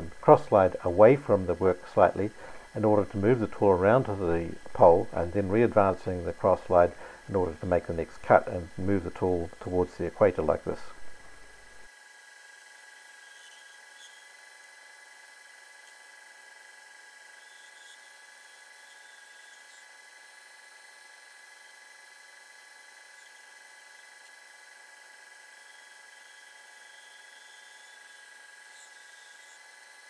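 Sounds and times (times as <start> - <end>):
metal lathe whining: 0.0 - 30.0.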